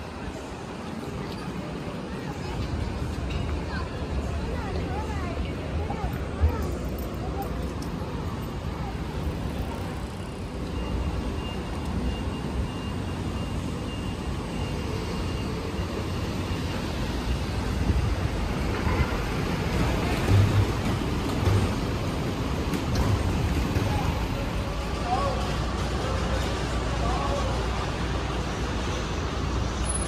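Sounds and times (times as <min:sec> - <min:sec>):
traffic rumble: 0:00.0 - 0:30.0.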